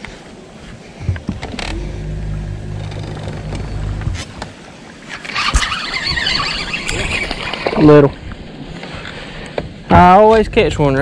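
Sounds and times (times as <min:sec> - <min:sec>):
boat motor humming: 0:01.0 - 0:09.8.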